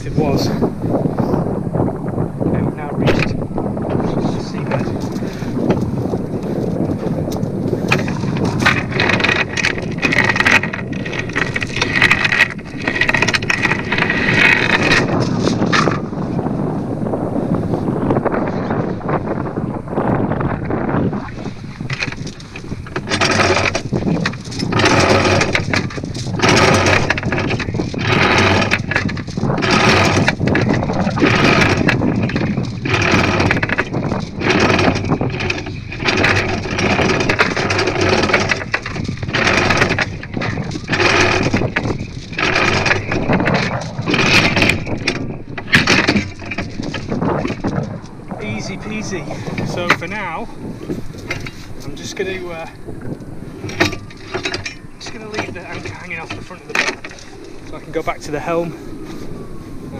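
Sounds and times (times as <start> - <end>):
wind buffeting microphone: 0.0 - 59.9
anchor chain rattling and clanking: 2.5 - 16.4, 20.0 - 59.2.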